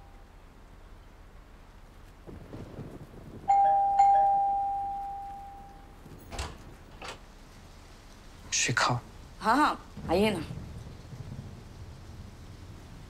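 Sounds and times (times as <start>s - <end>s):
two-note doorbell chime: 3.5s - 5.8s.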